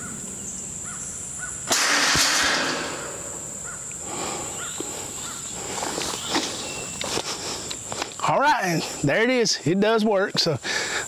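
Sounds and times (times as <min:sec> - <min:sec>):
high insect drone: 0:00.0 - 0:11.0
metal trap door crashing shut: 0:01.7 - 0:03.2.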